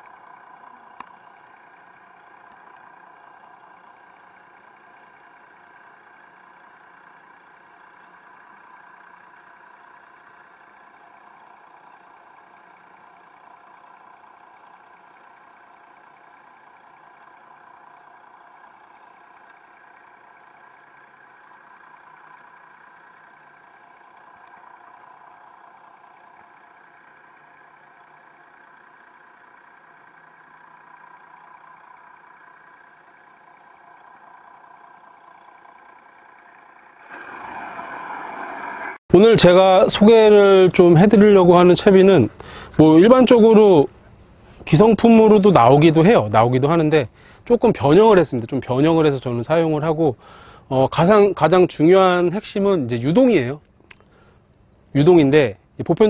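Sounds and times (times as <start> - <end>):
muffled underwater mechanical hum: 0.0 - 56.0
click: 1.0 - 1.2, 53.6 - 55.0.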